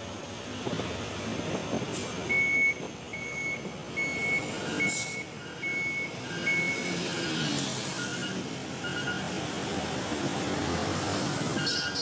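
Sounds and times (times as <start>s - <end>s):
passing truck traffic: 0.0s - 12.0s
truck warning beeper: 2.3s - 9.3s.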